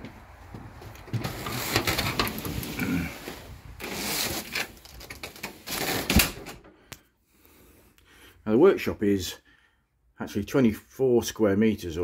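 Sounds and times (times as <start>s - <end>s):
rattling and knocks: 0.6s - 2.7s
door opening: 0.8s - 6.6s.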